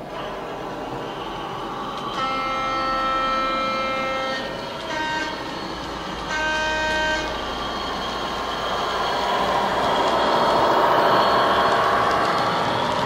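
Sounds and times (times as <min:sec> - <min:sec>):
locomotive horn blasts: 0:02.1 - 0:05.5, 0:06.2 - 0:07.5.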